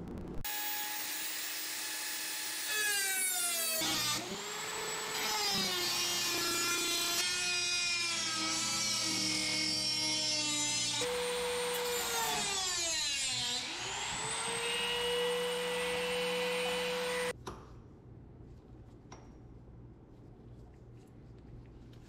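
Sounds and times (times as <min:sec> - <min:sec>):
rotary tool cutting sheet metal: 0:00.5 - 0:17.3.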